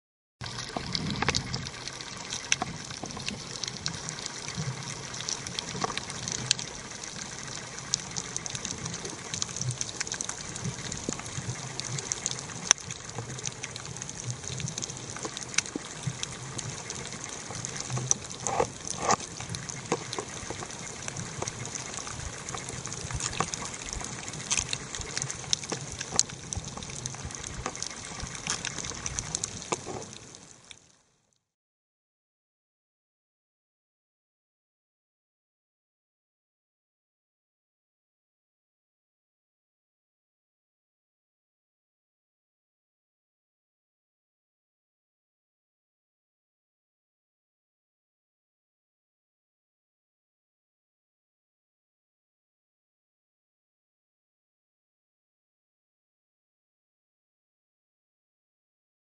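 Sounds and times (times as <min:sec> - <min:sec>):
sharp underwater clicks: 0:00.4 - 0:30.9.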